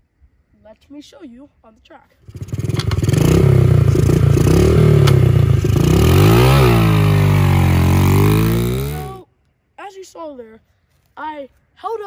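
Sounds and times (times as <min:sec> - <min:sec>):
motorbike engine revving hard: 0:02.2 - 0:09.2.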